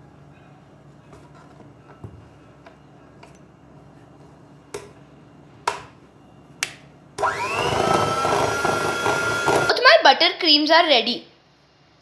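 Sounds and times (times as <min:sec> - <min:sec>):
electric hand mixer whining: 0:07.2 - 0:09.8.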